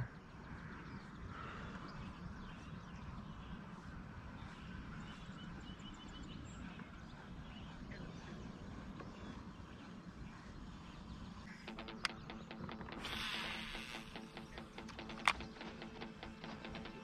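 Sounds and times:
faint bird chirps: 0.0 - 17.0
steady low rumble: 0.0 - 17.0
ticking beat music: 11.5 - 17.0.

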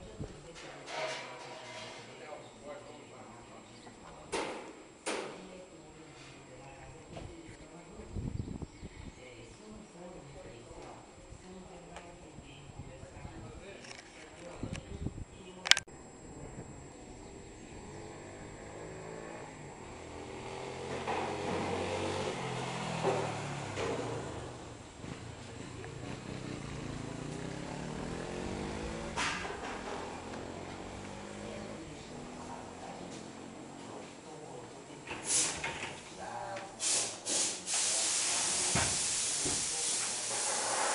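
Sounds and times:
vehicle engine running: 16.2 - 34.6
hissing spray: 35.2 - 35.7, 36.8 - 40.9.

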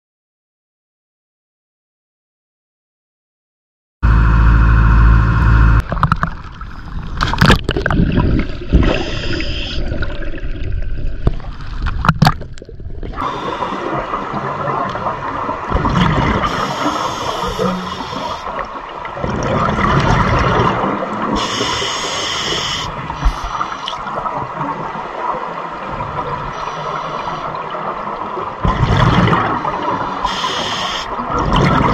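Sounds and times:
boat engine rumble: 4.0 - 8.7
exhaust bubbles gurgling: 5.8 - 31.9
diver breathing through regulator: 8.9 - 10.0, 13.2 - 14.2, 16.4 - 18.6, 21.4 - 24.1, 29.9 - 31.2.

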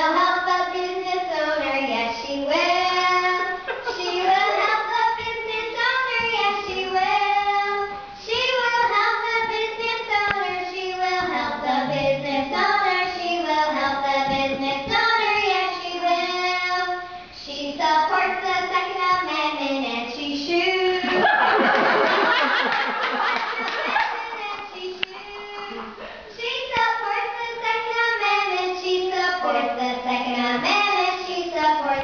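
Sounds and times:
person singing: 11.4 - 12.7
crowd cheering and clapping: 21.1 - 24.6.

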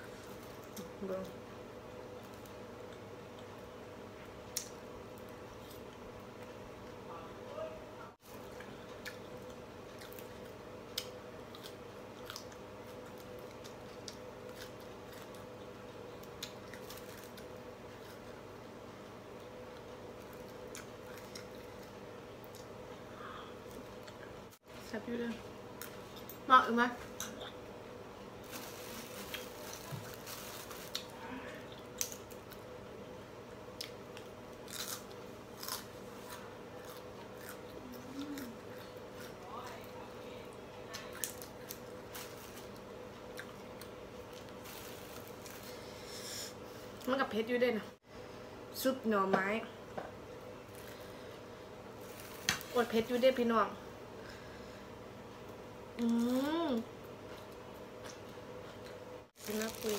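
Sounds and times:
steady low hum: 0.0 - 59.9
person chewing food: 8.2 - 18.4, 33.8 - 39.4, 41.0 - 46.0.

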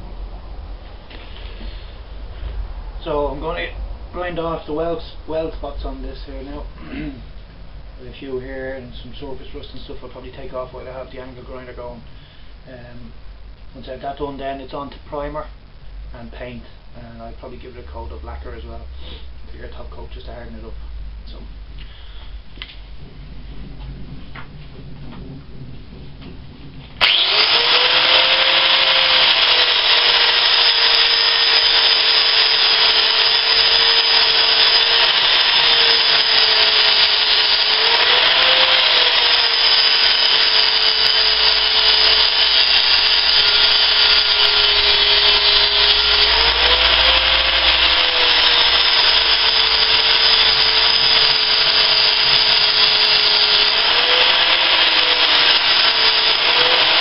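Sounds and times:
angle grinder grinding metal: 27.0 - 57.0.

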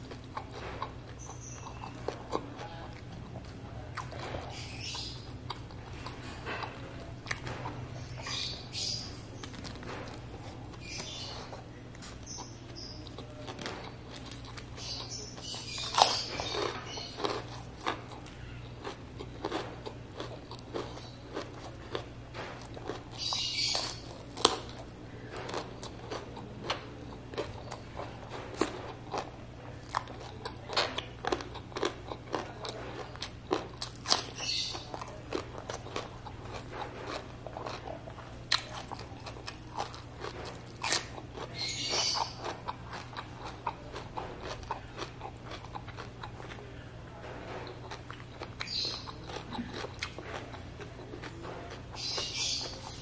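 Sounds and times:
crunchy bites: 0.0 - 46.6
wet chewing and lip smacks: 25.4 - 46.6, 47.6 - 53.0.

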